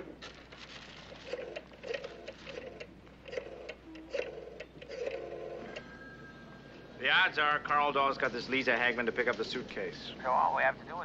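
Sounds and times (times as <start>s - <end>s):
rotary telephone dial whirring: 1.2s - 5.9s.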